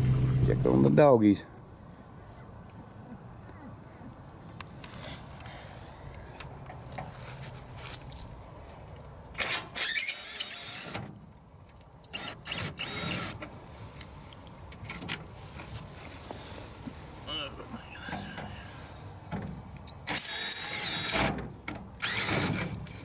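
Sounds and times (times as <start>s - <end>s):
cordless drill running: 12.1s - 13.4s, 20.1s - 21.2s, 22.0s - 22.7s.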